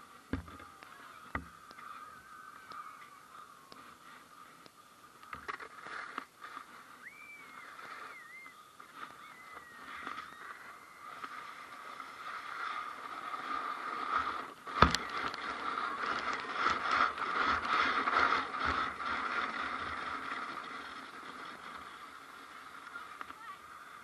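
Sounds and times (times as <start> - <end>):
sled scraping over snow: 0.0 - 24.0
sled rattling: 5.2 - 24.0.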